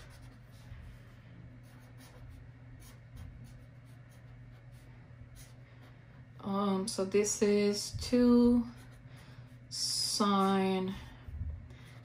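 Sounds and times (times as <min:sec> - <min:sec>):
marker scratching on paper: 0:00.0 - 0:05.9, 0:08.0 - 0:11.0.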